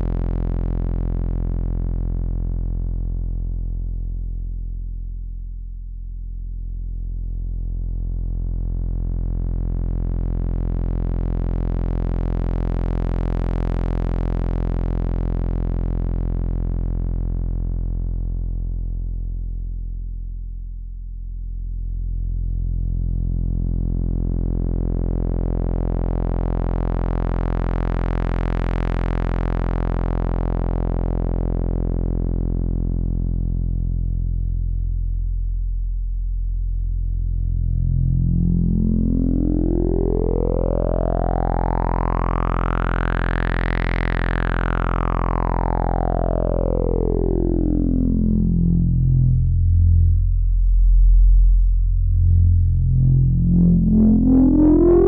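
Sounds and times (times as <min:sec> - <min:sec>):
low sawtooth synth drone: 0:37.4 - 0:55.0.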